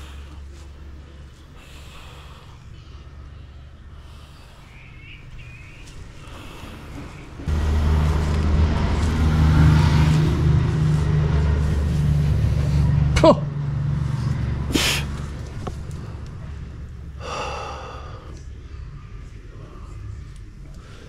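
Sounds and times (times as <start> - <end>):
vehicle engine droning: 0.0 - 21.0.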